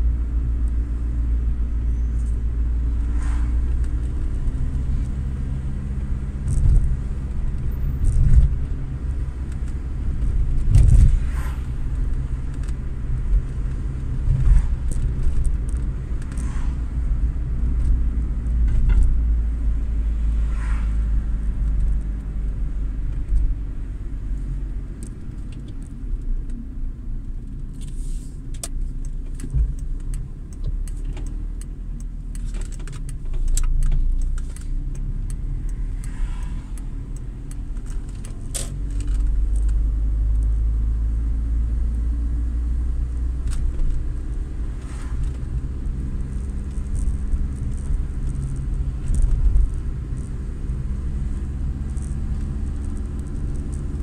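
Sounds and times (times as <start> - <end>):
car engine and tyre rumble: 0.0 - 54.0
small rattles and clicks: 6.4 - 11.1, 12.0 - 16.5, 27.2 - 40.6, 43.0 - 54.0.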